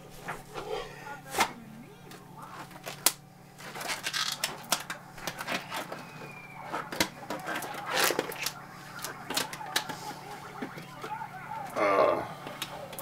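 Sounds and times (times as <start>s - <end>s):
steady low hum: 0.0s - 13.0s
plastic tubs clicking and rustling: 2.6s - 9.9s.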